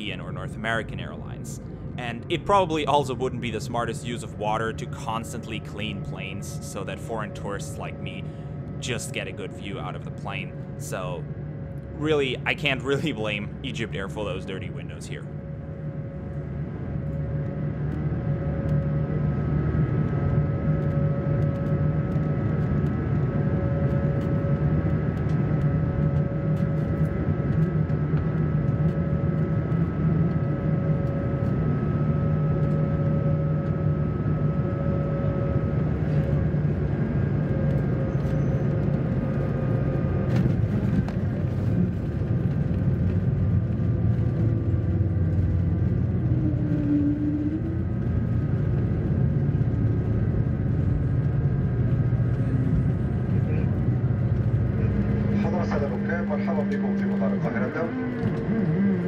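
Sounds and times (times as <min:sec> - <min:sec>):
aircraft cabin engine hum: 0:00.0 - 0:59.0
rising tone: 0:45.3 - 0:48.3.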